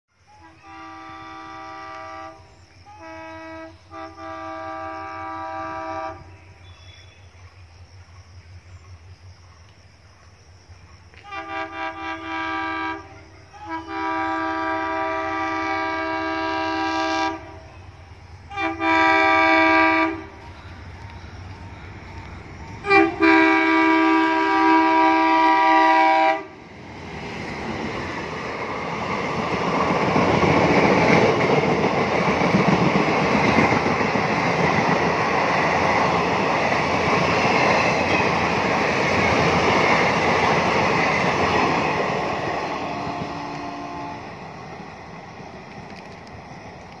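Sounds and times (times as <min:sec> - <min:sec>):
train rumble: 0:00.2 - 0:47.0
train rushing past: 0:00.2 - 0:47.0
locomotive horn blasts: 0:00.3 - 0:07.2, 0:11.2 - 0:17.8, 0:18.5 - 0:20.5, 0:22.8 - 0:26.6, 0:42.8 - 0:44.4.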